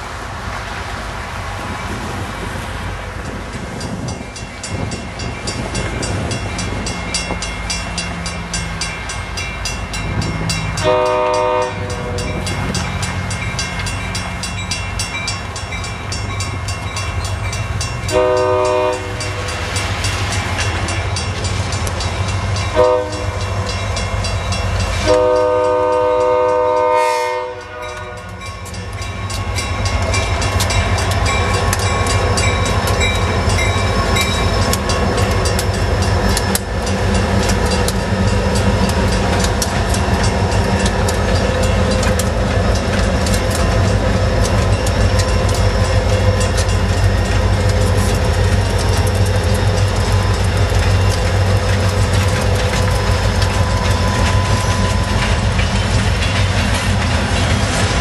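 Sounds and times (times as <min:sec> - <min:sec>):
locomotive engine rumble: 0:00.0 - 0:58.0
crossing bell ringing: 0:03.0 - 0:57.6
train air horn blasts: 0:10.8 - 0:12.4, 0:18.1 - 0:19.4, 0:22.7 - 0:23.4, 0:25.0 - 0:28.4.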